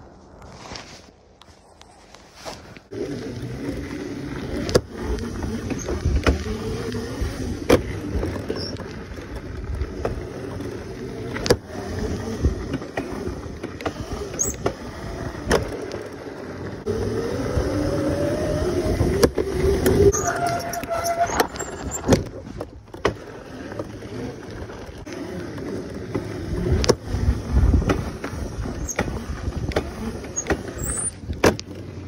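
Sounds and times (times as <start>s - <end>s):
tyres rumbling on dirt: 2.4s - 32.0s
electric motor whine: 9.8s - 21.9s.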